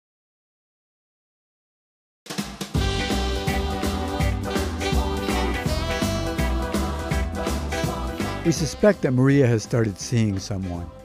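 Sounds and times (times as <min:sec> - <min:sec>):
music with pulsing bass: 0:02.8 - 0:08.9.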